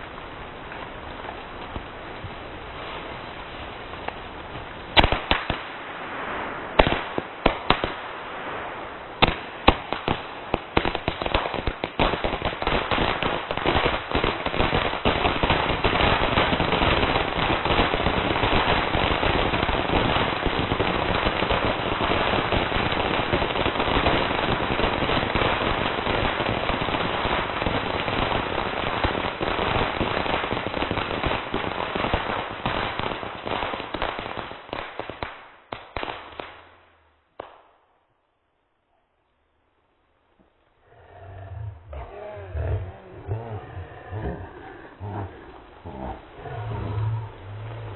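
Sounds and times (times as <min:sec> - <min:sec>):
firecrackers banging: 0:09.2 - 0:37.7.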